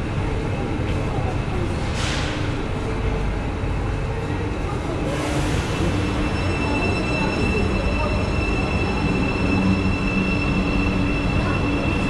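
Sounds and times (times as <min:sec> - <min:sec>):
low train rumble: 0:00.0 - 0:12.0
electric train whine: 0:03.0 - 0:12.0.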